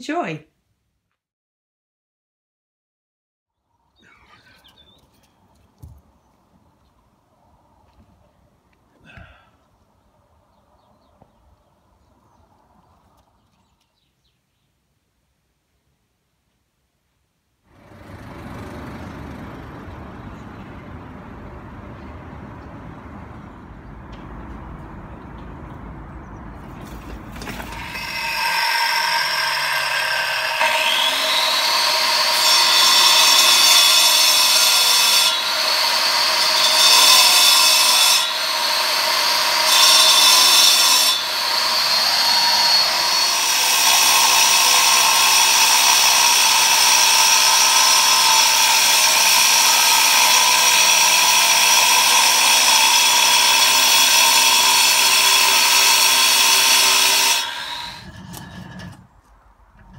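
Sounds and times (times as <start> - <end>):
power saw cutting stone: 26.8 - 59.2.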